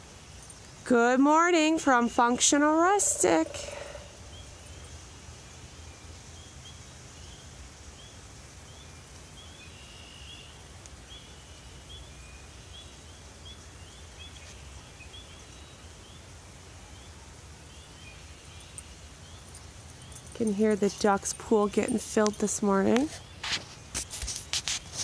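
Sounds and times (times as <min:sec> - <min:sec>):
chorus of high rising chirps: 0:02.9 - 0:05.0, 0:18.1 - 0:22.6.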